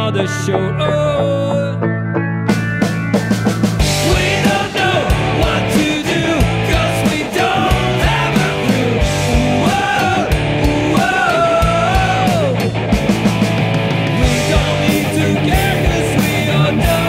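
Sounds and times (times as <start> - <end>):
bending melodic lead line: 0.0 - 11.0
rock band playing live: 0.0 - 17.0.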